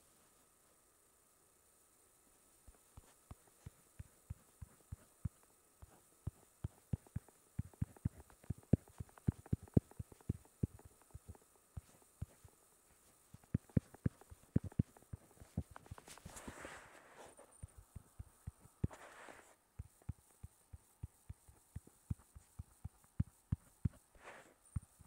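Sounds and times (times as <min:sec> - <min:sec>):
taps on a touchscreen: 0:06.3 - 0:12.5, 0:13.4 - 0:16.1.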